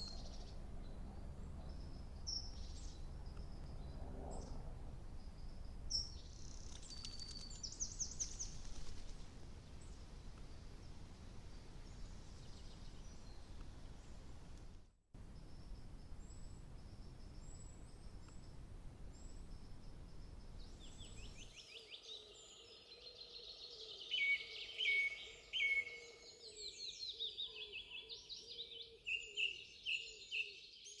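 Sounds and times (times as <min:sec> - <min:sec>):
birdsong with trills and whistles: 0:00.0 - 0:04.6, 0:05.2 - 0:09.1, 0:15.4 - 0:31.0
outdoor background hiss: 0:00.0 - 0:31.0.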